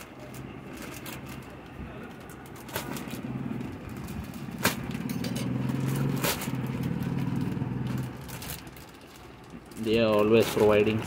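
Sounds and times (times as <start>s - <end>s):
low engine-like hum: 0.0s - 11.0s
plastic mailer being cut: 2.4s - 11.0s.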